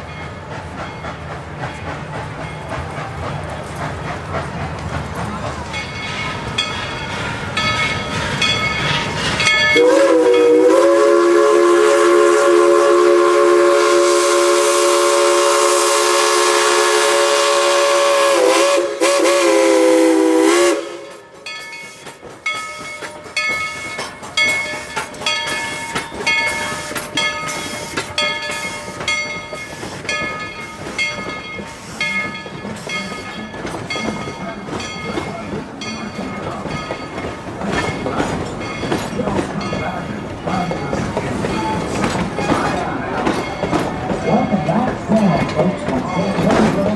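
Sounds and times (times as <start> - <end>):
train rhythmic clatter: 0.0 - 46.9
steam whistle chord: 9.7 - 21.2.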